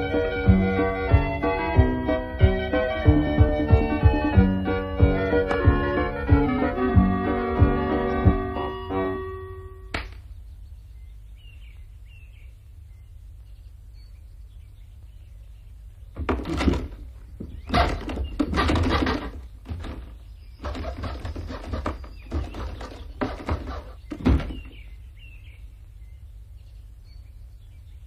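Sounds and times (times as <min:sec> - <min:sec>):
rough scraping and knocking: 0:16.2 - 0:24.8
faint bird chirps: 0:19.2 - 0:28.0.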